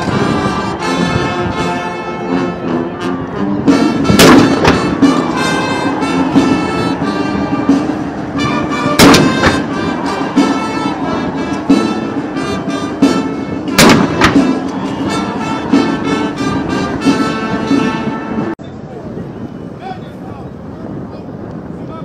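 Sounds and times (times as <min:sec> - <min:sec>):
band music: 0:00.0 - 0:18.6
field gun blasts with echo: 0:04.1 - 0:05.1, 0:08.9 - 0:09.8, 0:13.7 - 0:14.6.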